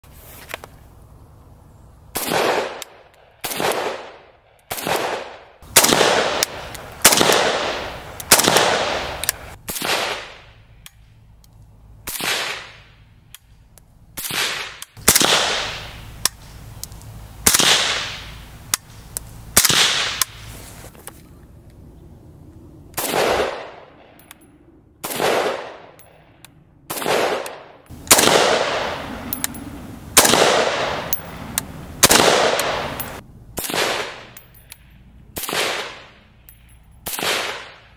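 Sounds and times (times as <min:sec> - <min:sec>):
rifle shots echoing: 0:02.1 - 0:10.7, 0:12.0 - 0:13.0, 0:14.2 - 0:16.5, 0:17.4 - 0:18.9, 0:19.6 - 0:20.4, 0:23.0 - 0:24.2, 0:25.0 - 0:26.2, 0:26.9 - 0:34.5, 0:35.3 - 0:37.9.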